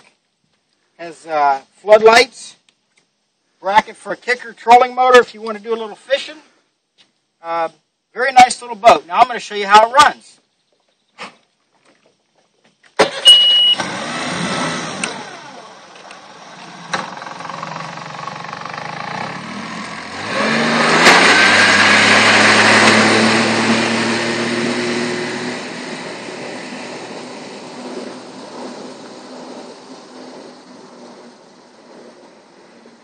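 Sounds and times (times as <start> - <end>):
short beep: 13.2 - 13.8
outboard motor running: 13.2 - 20.1.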